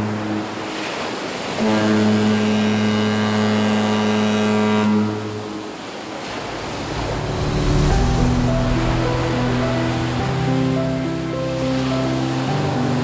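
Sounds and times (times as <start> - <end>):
ship's horn blast: 0.0 - 12.9
rushing noise: 6.1 - 12.4
music: 6.7 - 13.0.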